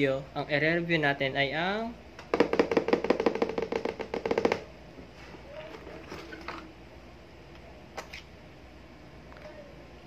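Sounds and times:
rapid sharp pops: 0:02.2 - 0:04.7.

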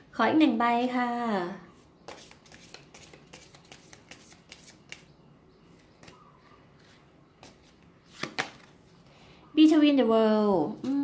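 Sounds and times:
cards being shuffled: 0:02.1 - 0:05.1, 0:06.8 - 0:08.8.

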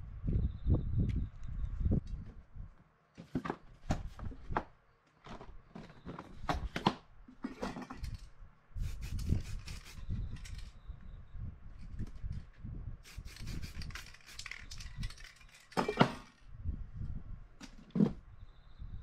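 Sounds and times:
aerosol spray can hissing: 0:08.8 - 0:10.1, 0:13.0 - 0:14.8.

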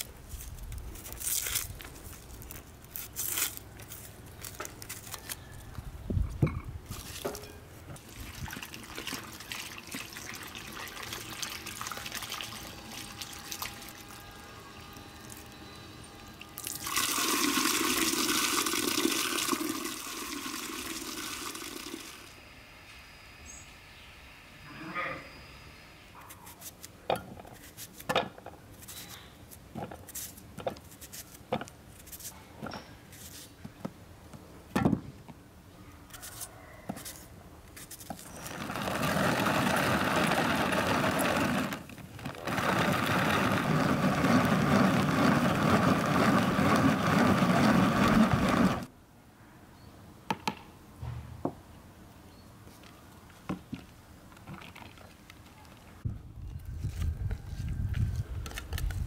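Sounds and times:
food chopper running: 0:38.6 - 0:48.9.

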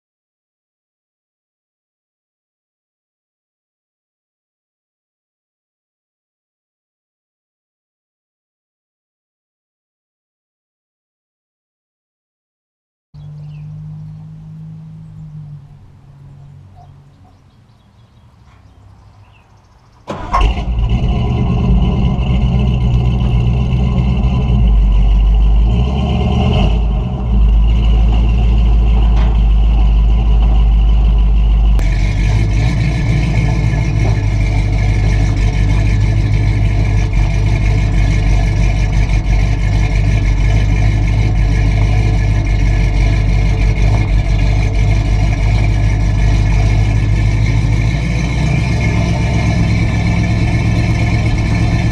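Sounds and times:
truck engine starting and revving: 0:13.2 - 0:51.9.

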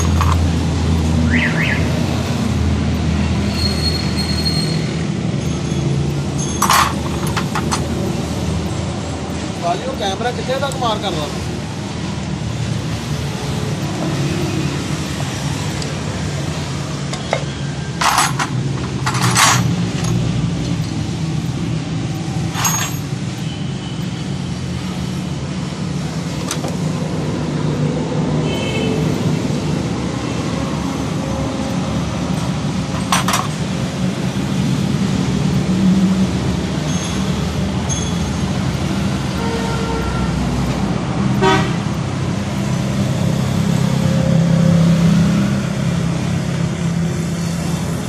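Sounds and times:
metal hand tools clinking: 0:06.4 - 0:07.8, 0:18.0 - 0:20.2, 0:22.5 - 0:23.1.

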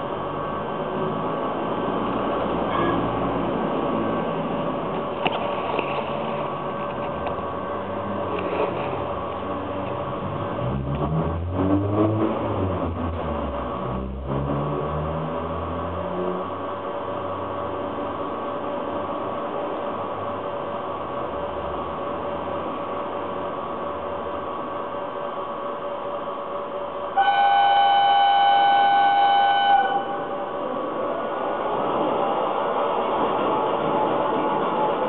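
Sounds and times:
low rising motor tone: 0:09.0 - 0:18.4
model trains running: 0:16.0 - 0:35.0
train horn tone: 0:27.1 - 0:30.4.

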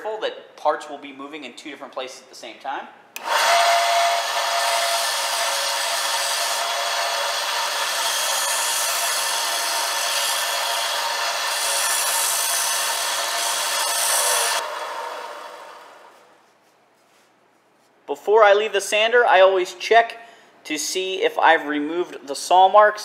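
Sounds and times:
sander motor running: 0:03.2 - 0:16.3.

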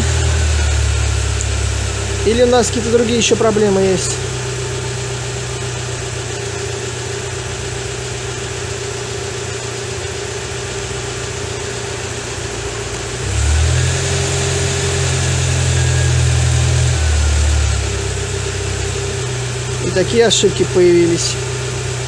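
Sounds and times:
van engine idling: 0:00.0 - 0:22.0.

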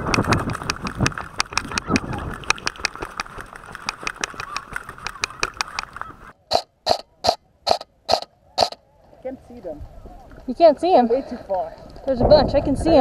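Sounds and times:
running footsteps on dry ground: 0:00.0 - 0:06.3
gear rattling: 0:00.0 - 0:08.8
airsoft rifle shots: 0:06.5 - 0:08.8.

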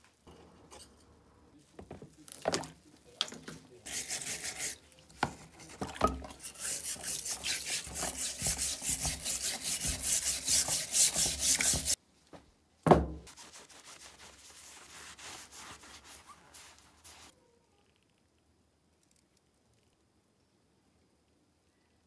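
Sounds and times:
wet scrubbing of metal blade: 0:03.9 - 0:12.0.

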